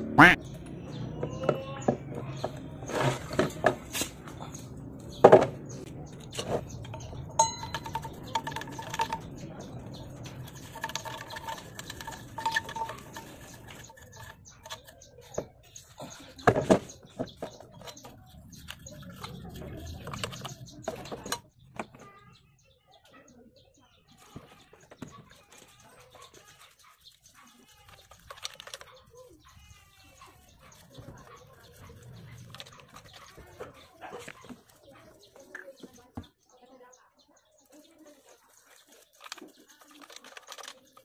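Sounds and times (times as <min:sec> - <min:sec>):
metal parts clinking on concrete: 0:06.8 - 0:09.4, 0:10.3 - 0:14.9.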